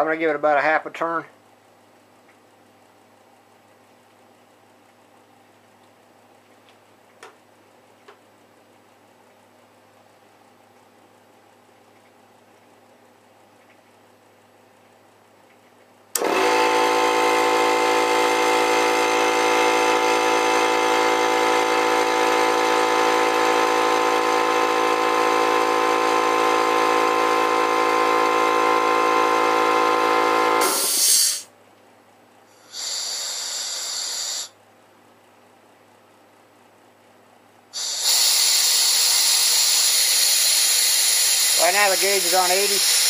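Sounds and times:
air compressor running: 16.1s - 31.5s, 32.5s - 34.6s, 37.7s - 43.0s
air hissing from valve: 30.5s - 31.5s, 32.5s - 34.6s, 37.7s - 43.0s.

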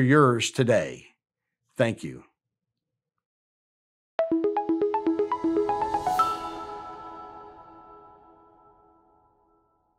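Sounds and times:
musical logo sting: 4.2s - 9.2s.

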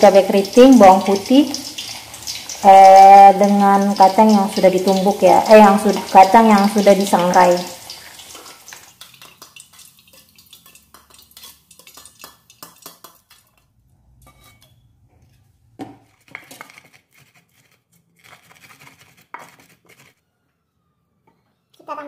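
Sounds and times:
metal strainer scraping wok: 7.8s - 20.1s.

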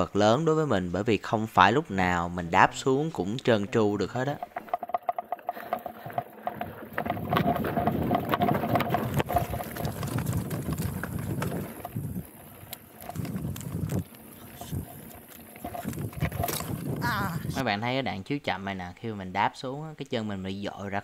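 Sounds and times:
bike rattling over bumps: 3.5s - 17.6s
tyres crunching over gravel: 4.1s - 17.0s.

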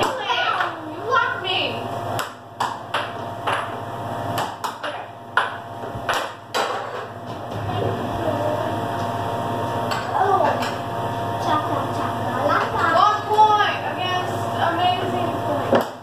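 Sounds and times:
low hum of air blower: 0.0s - 16.0s
air hockey puck clacking: 2.2s - 3.8s, 4.4s - 7.1s.

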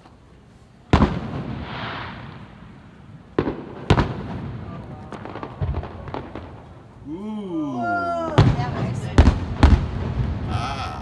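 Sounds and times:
firework crackling: 0.0s - 7.1s, 7.8s - 11.0s
firework bangs: 0.9s - 7.0s, 8.3s - 11.0s
firework pops: 8.4s - 10.4s.

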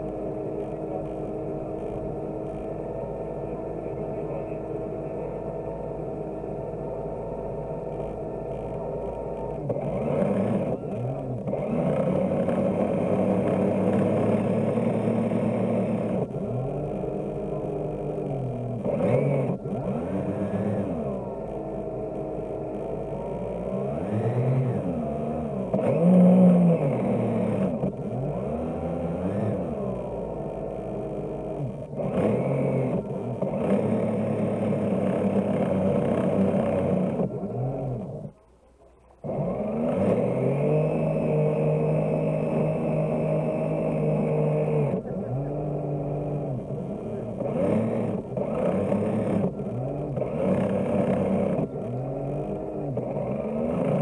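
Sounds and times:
model boat motor running: 0.0s - 38.4s, 39.2s - 54.0s.

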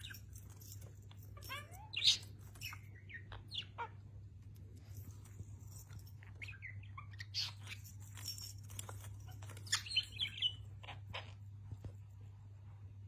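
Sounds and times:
budgerigar chirping and chattering: 1.4s - 4.1s, 6.2s - 8.4s, 9.2s - 11.4s.

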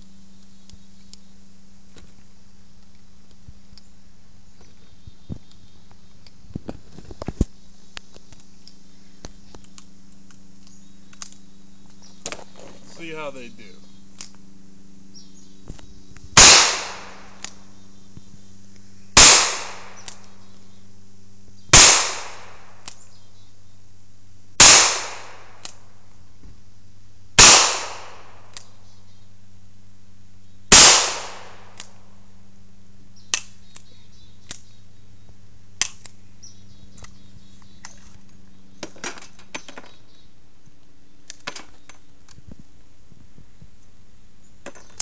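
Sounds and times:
revolver shots echoing: 16.4s - 17.6s, 19.2s - 20.2s, 21.8s - 22.7s, 24.6s - 25.7s, 27.4s - 28.4s, 30.7s - 31.9s.

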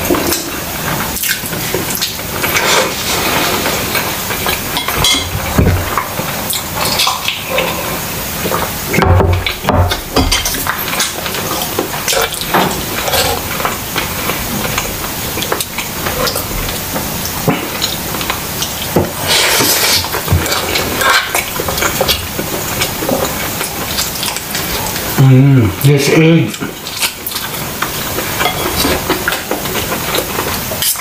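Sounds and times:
chewing and mouth noises: 0.0s - 25.2s, 26.5s - 31.0s
cutlery scraping ceramic plates: 28.4s - 29.4s.

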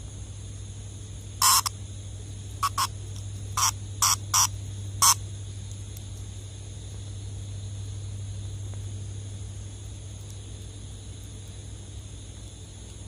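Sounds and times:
cicada buzzing: 0.0s - 5.6s.

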